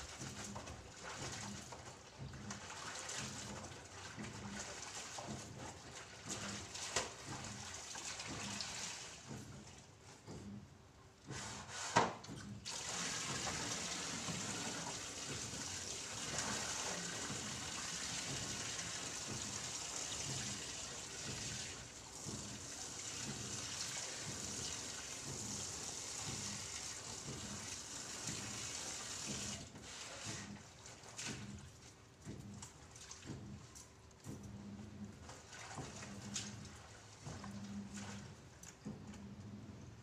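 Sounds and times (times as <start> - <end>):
water running from a tap: 12.6 - 31.6.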